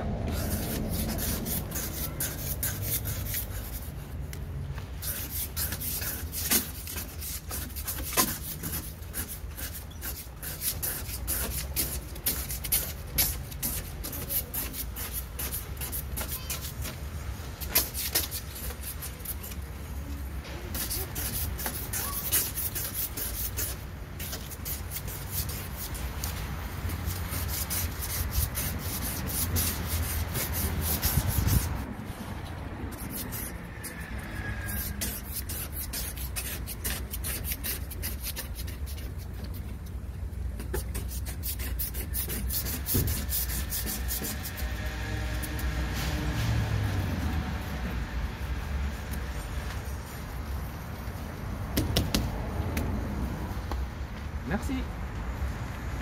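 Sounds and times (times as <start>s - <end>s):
scraper blade scraping glass: 0.3s - 3.9s, 5.0s - 19.7s, 20.6s - 31.8s, 32.9s - 39.8s, 40.6s - 46.2s.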